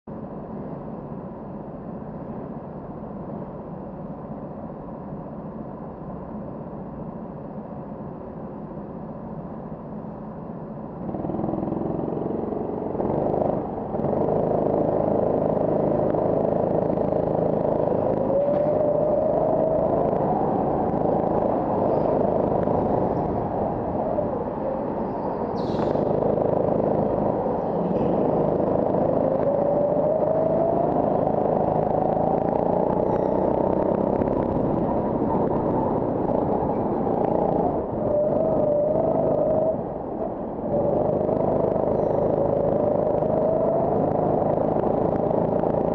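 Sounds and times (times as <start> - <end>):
go-kart engines running: 10.7 - 45.9.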